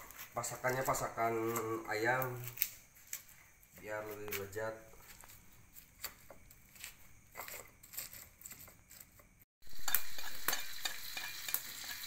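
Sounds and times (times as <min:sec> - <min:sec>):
pestle scraping in stone mortar: 0:05.0 - 0:12.0
paste sizzling in hot oil: 0:09.6 - 0:12.0.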